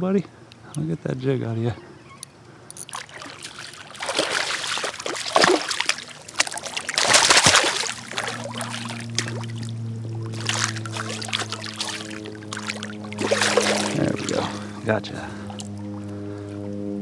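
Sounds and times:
fish thrashing and splashing: 0:02.7 - 0:16.0.

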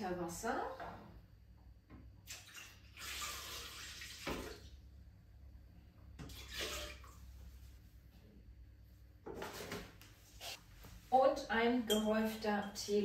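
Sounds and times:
water pouring into steel bowl: 0:02.3 - 0:04.6.

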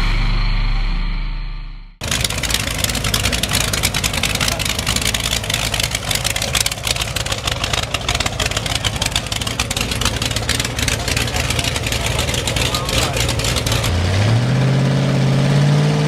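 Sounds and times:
v eight engine rumbling at low revs: 0:02.0 - 0:16.0.

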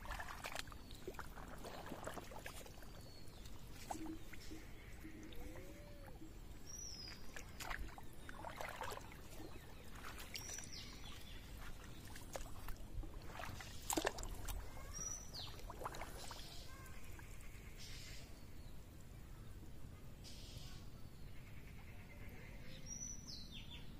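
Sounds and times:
water splashes and knocks: 0:00.0 - 0:05.5, 0:07.0 - 0:17.2.

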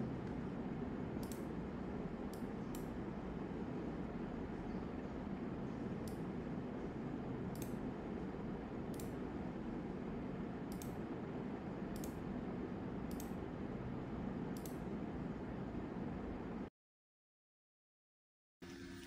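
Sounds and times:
low background hum: 0:00.0 - 0:16.7
computer mouse clicking: 0:01.2 - 0:01.5, 0:02.3 - 0:02.9, 0:06.0 - 0:06.3, 0:07.5 - 0:07.8, 0:08.9 - 0:09.2, 0:10.7 - 0:11.0, 0:11.9 - 0:12.2, 0:13.1 - 0:13.4, 0:14.5 - 0:14.9.

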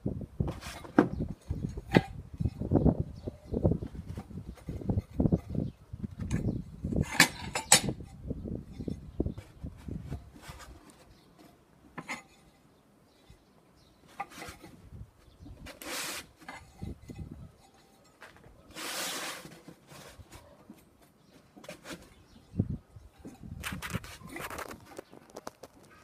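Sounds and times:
tiles scraping: 0:08.7 - 0:12.6, 0:14.1 - 0:14.8, 0:15.5 - 0:22.6.

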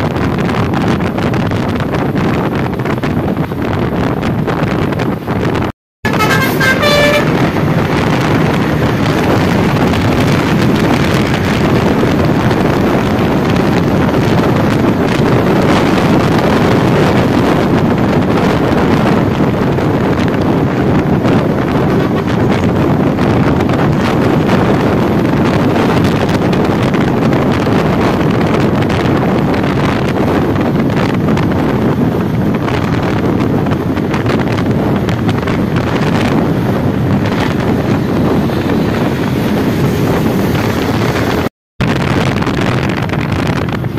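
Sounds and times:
loud traffic noise: 0:00.0 - 0:43.9
musical bus horn: 0:06.0 - 0:07.9, 0:21.7 - 0:22.8.

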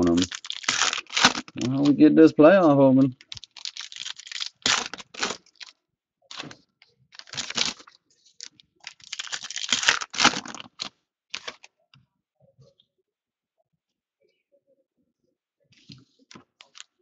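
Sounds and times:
foil pack crinkling: 0:00.0 - 0:02.0, 0:03.1 - 0:11.7, 0:16.3 - 0:16.9.

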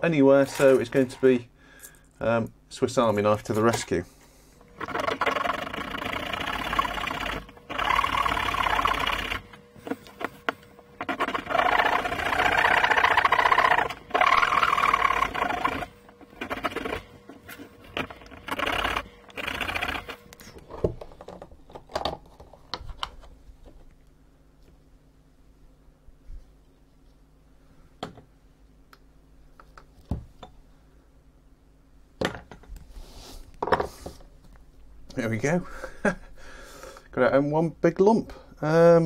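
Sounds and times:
saw blade rasping through plastic: 0:04.8 - 0:20.2.

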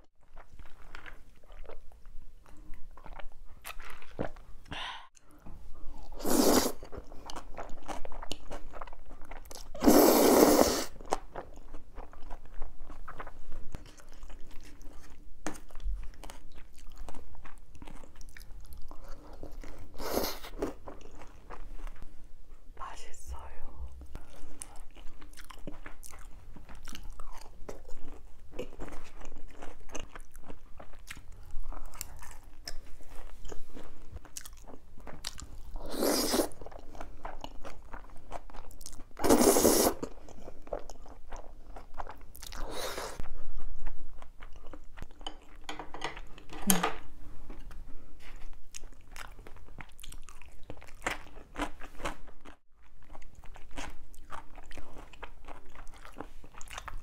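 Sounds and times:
crunching and chewing: 0:00.2 - 0:05.4, 0:06.0 - 0:09.8, 0:10.9 - 0:22.0, 0:24.2 - 0:46.7, 0:47.4 - 0:57.0
slurping noodles: 0:06.1 - 0:06.9, 0:09.8 - 0:11.0, 0:35.8 - 0:36.6, 0:39.2 - 0:40.1.

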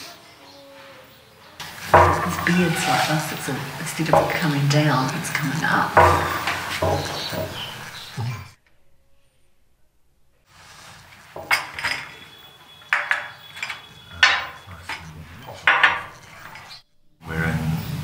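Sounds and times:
china cups clinking on stone: 0:01.6 - 0:08.0, 0:11.4 - 0:16.8.

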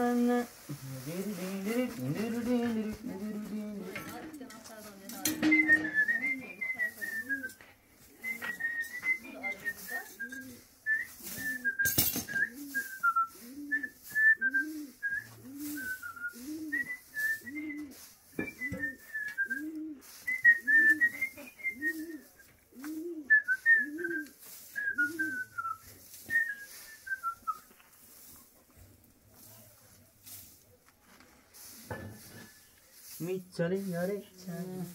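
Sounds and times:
dry straw rustling: 0:00.0 - 0:34.9
high whistled tune: 0:05.2 - 0:07.6, 0:08.2 - 0:22.5, 0:23.3 - 0:27.8
low cooing: 0:12.4 - 0:18.0, 0:18.6 - 0:25.8.

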